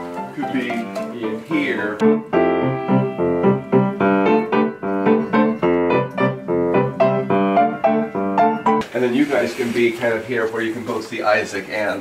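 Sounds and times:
upright piano repeated chords: 0.0 - 9.5.

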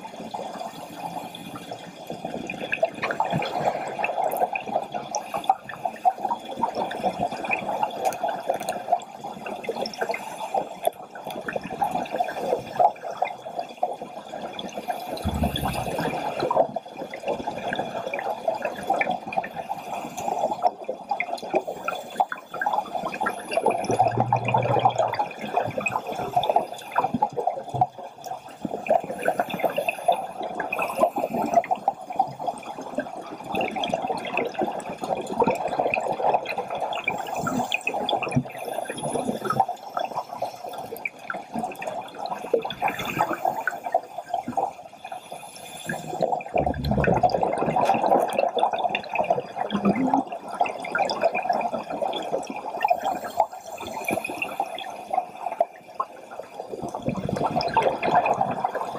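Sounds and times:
low rumbles: 23.9 - 25.4.

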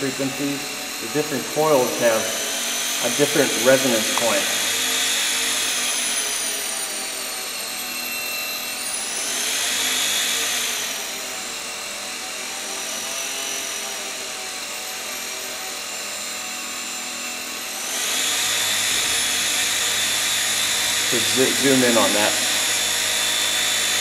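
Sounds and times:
high-pitched electrical whine: 0.0 - 11.3, 16.1 - 24.0.

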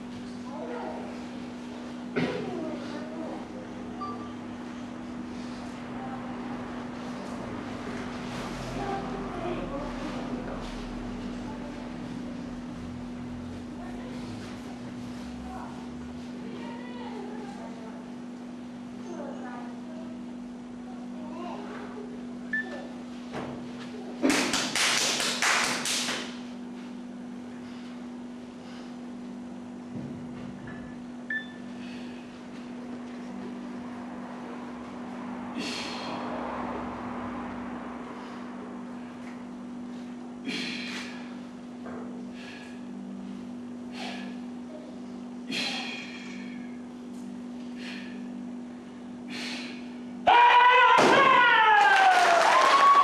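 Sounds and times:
electrical hum: 0.0 - 53.0
people clapping: 24.2 - 26.3, 51.7 - 53.0
short forceful breaths: 40.4 - 41.4
loud high shout: 50.2 - 53.0.

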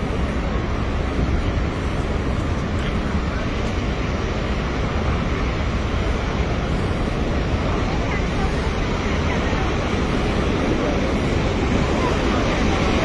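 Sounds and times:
faint crowd voices: 0.0 - 13.0
waterfall roaring: 0.0 - 13.0.

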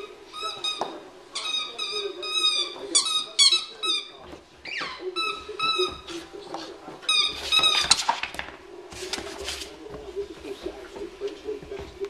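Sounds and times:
squeaky dog toy: 0.0 - 6.1, 7.1 - 8.0.

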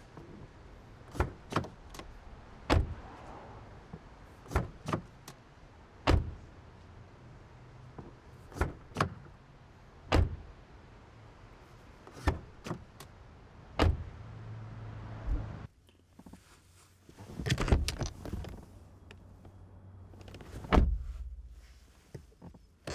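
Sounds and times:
car door shutting thump: 20.6 - 21.1.

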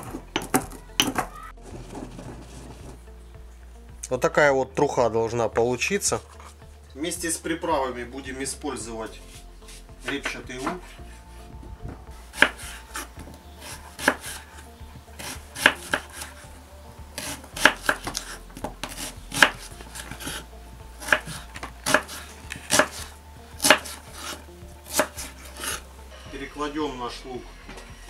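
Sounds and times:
knife chopping on wooden board: 12.3 - 14.5, 15.2 - 16.4, 17.2 - 20.4, 21.0 - 25.8.

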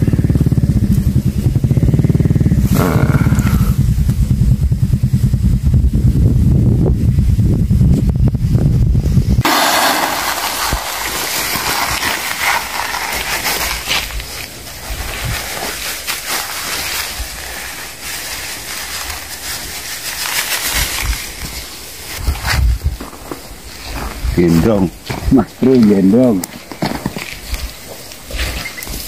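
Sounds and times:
granules pouring into bucket: 9.4 - 14.4
plastic sack rustling: 9.4 - 24.2.

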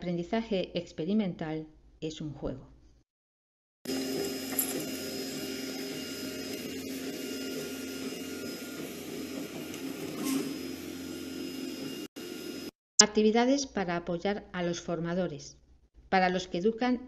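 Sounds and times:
printer motors whirring: 3.9 - 12.7.

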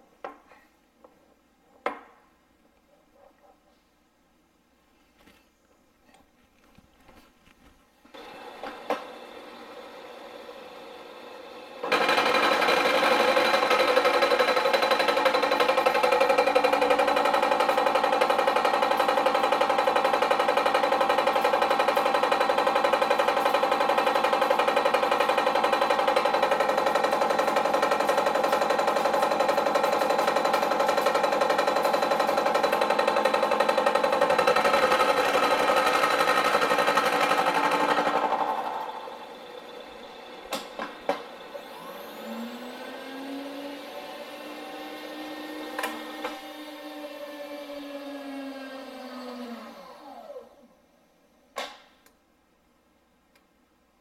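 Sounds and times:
milling machine running: 8.2 - 50.2.

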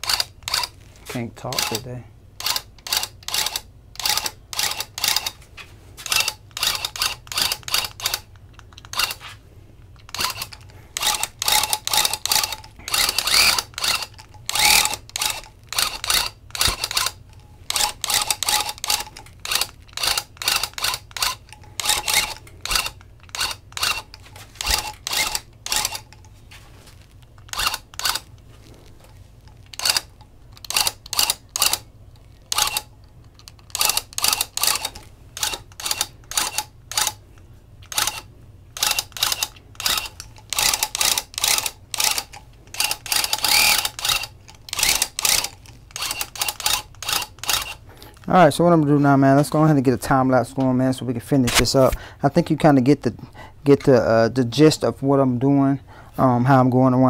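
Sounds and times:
tufting gun clattering: 1.5 - 5.4, 6.0 - 9.2, 9.8 - 26.4, 27.2 - 28.4, 29.0 - 48.3.

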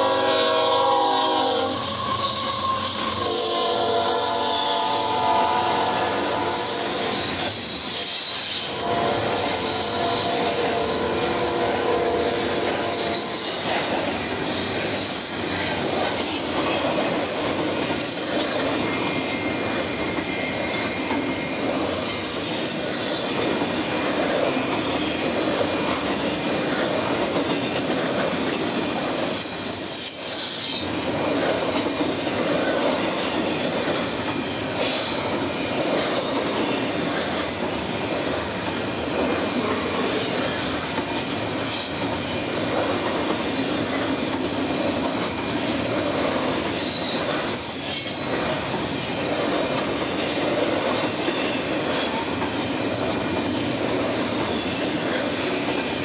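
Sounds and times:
freight train rolling past: 0.0 - 56.0
high-pitched wheel squeals: 1.7 - 3.3.

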